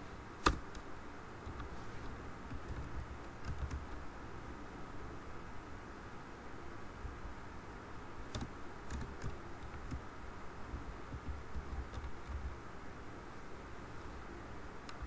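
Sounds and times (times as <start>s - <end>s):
low background hum: 0.0s - 15.0s
keyboard keystrokes: 0.4s - 0.9s, 2.5s - 4.0s, 8.3s - 10.0s, 11.1s - 12.5s.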